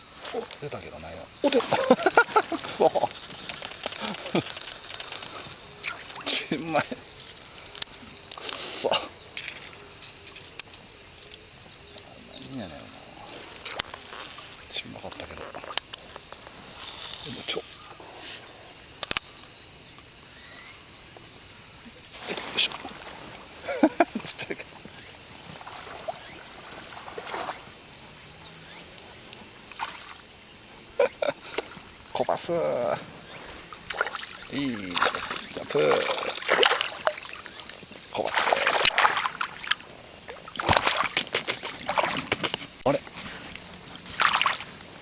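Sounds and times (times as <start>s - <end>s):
insect chorus drone: 0.0s - 45.0s
water splashes: 33.8s - 42.6s, 44.1s - 44.8s.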